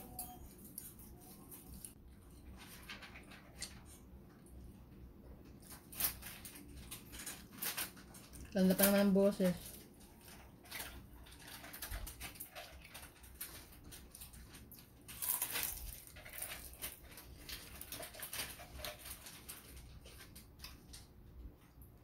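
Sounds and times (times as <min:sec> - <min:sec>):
chewing and crunching: 0:05.4 - 0:21.9.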